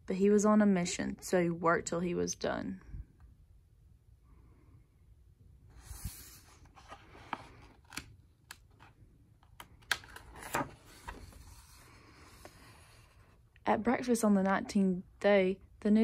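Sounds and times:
paper rustling and sliding: 5.7 - 8.1, 10.0 - 13.4.

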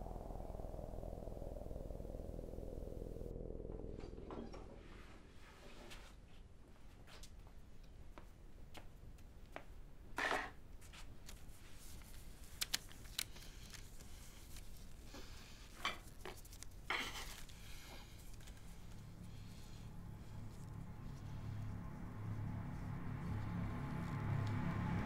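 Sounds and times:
hands rustling and scraping objects: 10.8 - 25.0.

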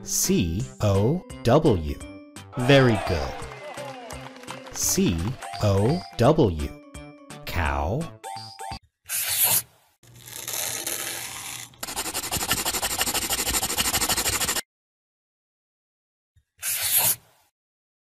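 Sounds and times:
crayon scribbling on paper: 11.8 - 14.6, 16.6 - 17.2.

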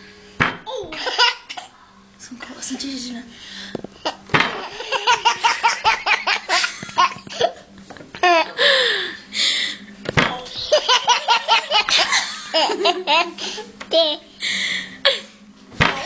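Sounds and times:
baby laughing: 0.8 - 1.6, 10.5 - 14.2.

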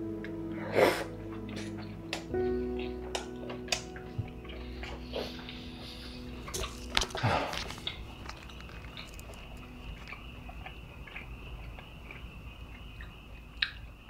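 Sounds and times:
person chewing noodles: 4.4 - 14.0.

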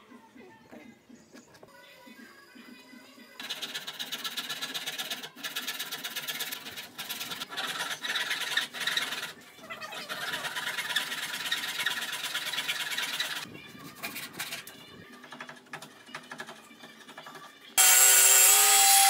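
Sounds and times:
hand saw rasping through wood: 3.4 - 9.4, 10.2 - 13.4.

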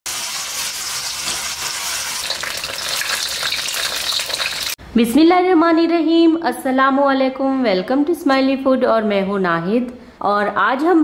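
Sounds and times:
hot oil sizzling: 0.0 - 4.8
woman speaking: 4.9 - 11.0.

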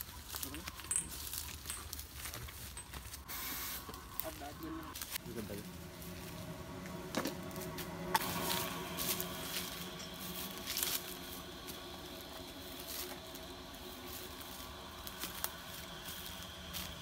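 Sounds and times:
sharp crackles: 0.0 - 6.3
faint high hum: 2.8 - 17.0.

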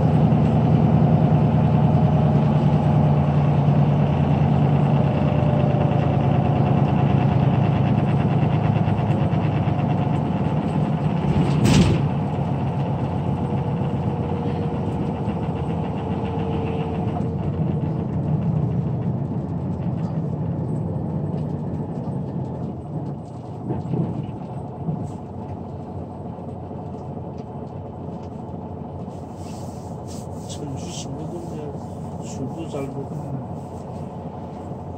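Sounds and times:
coach engine and road noise: 0.0 - 34.9.

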